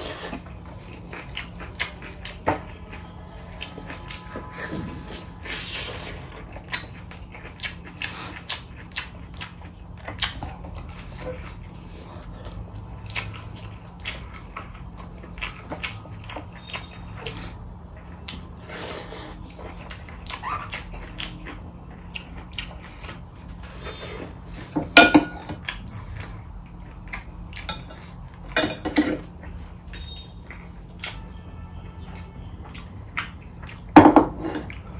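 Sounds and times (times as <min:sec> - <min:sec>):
chewing and mouth noises: 0:00.0 - 0:34.9
faint steady hum: 0:00.0 - 0:34.9
dishes clinking: 0:24.8 - 0:25.5, 0:28.5 - 0:29.3.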